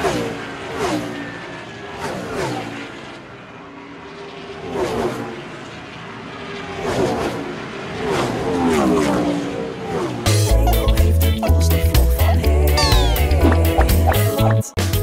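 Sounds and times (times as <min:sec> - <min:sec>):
racing vehicles passing by: 0:00.0 - 0:10.3.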